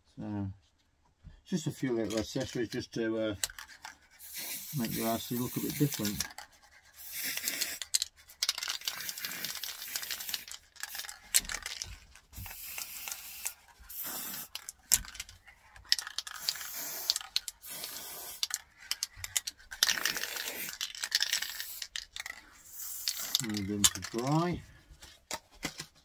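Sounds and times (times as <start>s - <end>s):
spray can hissing: 4.2s - 6.3s, 7.0s - 8.0s, 8.6s - 11.8s, 12.4s - 14.8s, 15.9s - 24.2s.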